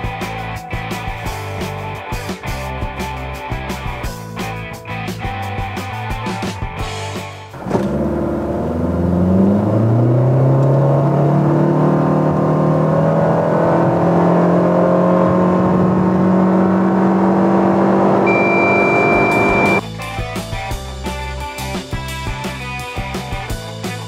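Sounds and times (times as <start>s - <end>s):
car engine revving: 7.5s - 19.8s
steady high beep: 18.2s - 19.8s.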